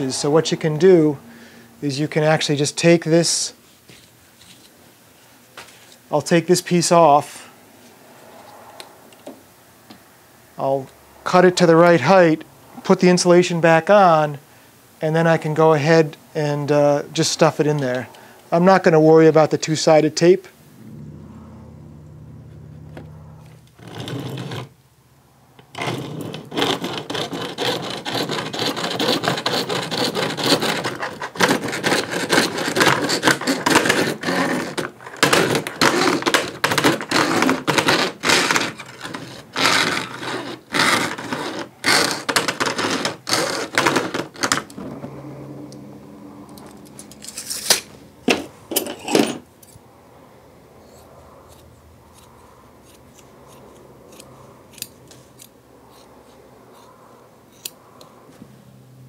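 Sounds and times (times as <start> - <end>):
hacksaw cutting plastic: 23.6 - 24.8, 25.6 - 44.8, 51.5 - 56.1, 57.5 - 58.1
scissors snipping: 51.5 - 56.1, 57.5 - 58.1.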